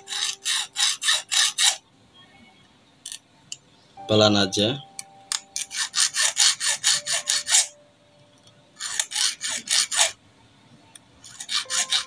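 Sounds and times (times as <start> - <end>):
file rasping on metal: 0.0 - 1.8, 5.6 - 7.7, 8.8 - 10.2, 11.2 - 12.0.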